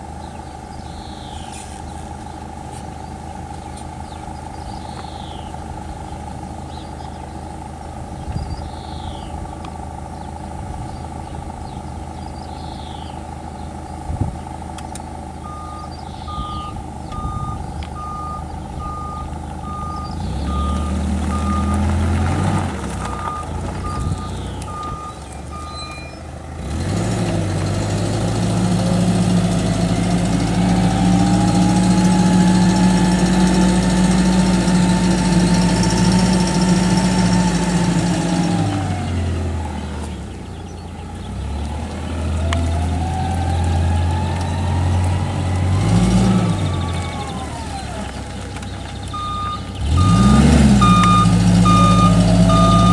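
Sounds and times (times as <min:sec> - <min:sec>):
forklift engine running: 0:00.0 - 0:52.9
back-up alarm beeping: 0:15.4 - 0:21.9, 0:23.0 - 0:26.3, 0:49.1 - 0:52.9.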